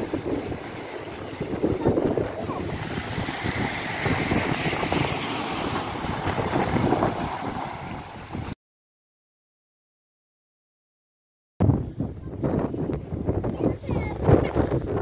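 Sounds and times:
waves breaking on pebble beach: 0.0s - 8.5s
wind buffeting microphone: 0.0s - 8.6s, 11.6s - 15.0s.

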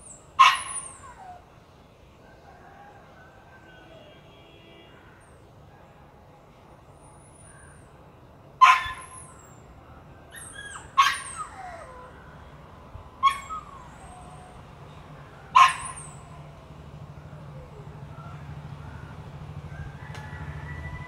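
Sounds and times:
dog barking: 0.4s - 1.1s, 8.6s - 9.3s, 10.8s - 12.0s, 15.5s - 16.2s.

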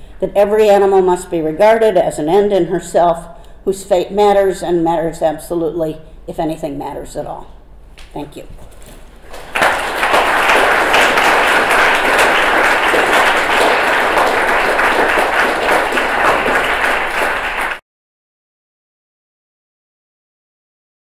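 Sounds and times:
audience applauding: 9.2s - 17.8s.

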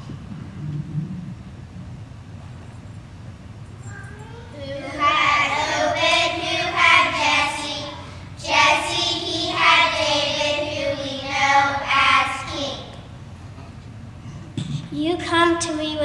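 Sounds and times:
young children singing in unison: 4.6s - 13.1s.

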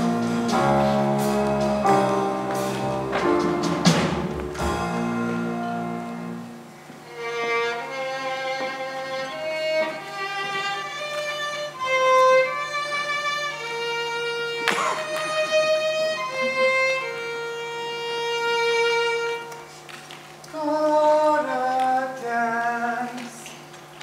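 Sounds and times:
stage-show music with bass line: 0.0s - 6.5s
solo violin slow melody: 5.3s - 19.7s.

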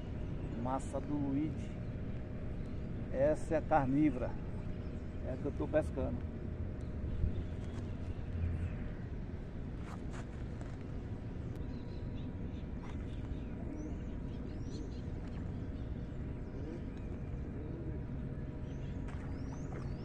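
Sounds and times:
birds chirping: 0.0s - 20.0s
low outdoor background noise: 0.0s - 20.0s.

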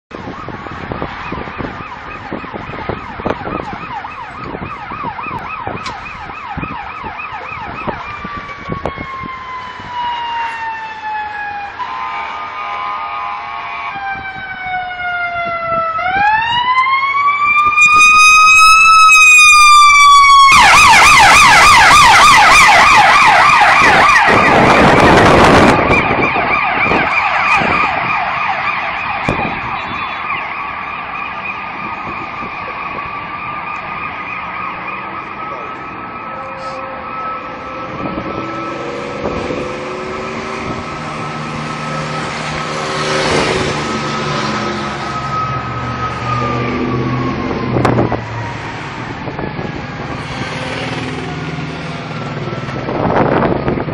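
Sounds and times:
emergency vehicle siren: 0.1s - 53.9s
heavy vehicle engine: 23.8s - 53.9s.

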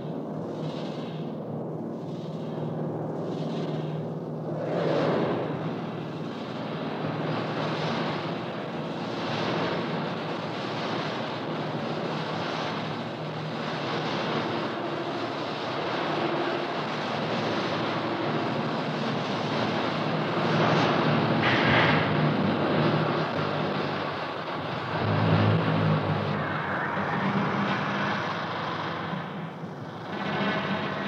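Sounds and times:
dense wash of noise: 0.0s - 31.0s
low hum: 13.7s - 31.0s.

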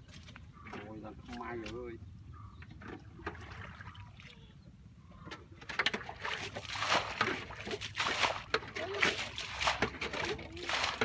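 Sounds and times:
mud squelching and sloshing: 0.0s - 2.0s, 2.8s - 4.5s, 5.6s - 11.0s.

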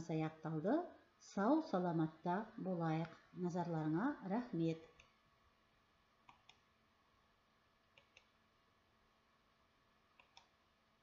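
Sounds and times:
computer mouse clicking: 4.8s - 5.2s, 6.2s - 6.7s, 7.9s - 8.4s, 10.1s - 10.6s.

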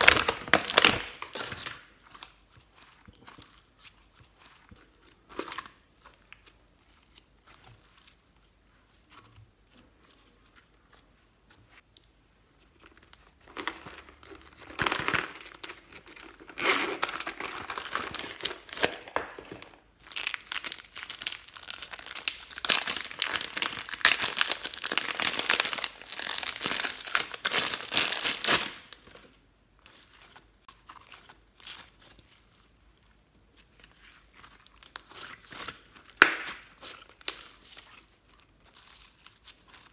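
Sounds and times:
plastic bag crinkling: 0.0s - 8.6s, 12.7s - 29.3s.

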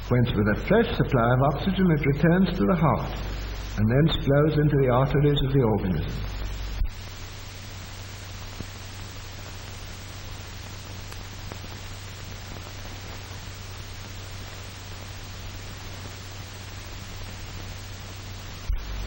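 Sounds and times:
film soundtrack hiss: 0.0s - 19.0s
low constant hum: 0.0s - 19.0s.

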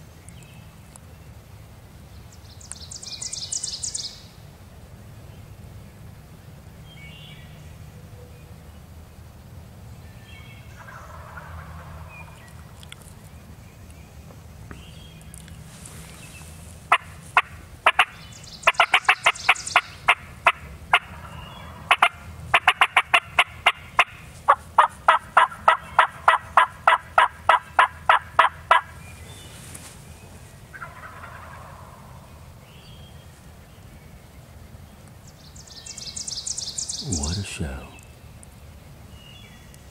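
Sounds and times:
wild turkey yelping: 10.8s - 12.4s, 16.9s - 29.0s, 30.7s - 32.4s.

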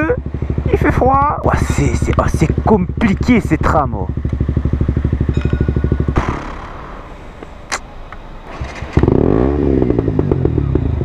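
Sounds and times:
motorcycle engine idling: 0.0s - 11.0s
sharp click: 7.4s - 9.0s.

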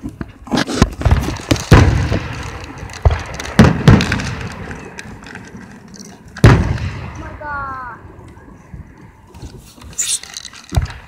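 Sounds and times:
firework shells bursting: 0.8s - 7.2s, 9.7s - 11.0s.

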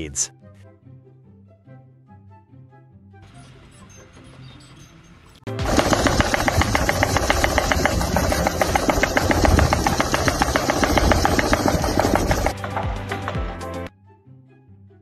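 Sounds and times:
sand sieve rattling: 5.5s - 12.8s
motor humming: 5.5s - 13.4s.

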